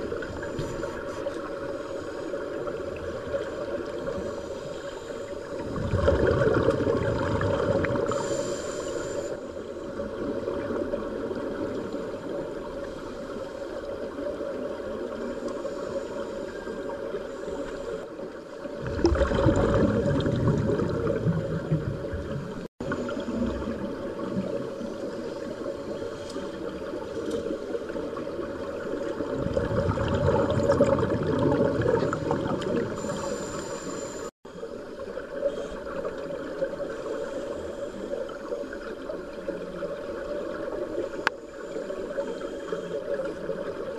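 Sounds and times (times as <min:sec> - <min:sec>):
exhaled bubble bursts: 0:05.6 - 0:08.3, 0:18.8 - 0:24.8, 0:29.1 - 0:33.6
underwater regulator breathing: 0:08.0 - 0:09.6, 0:32.0 - 0:34.3.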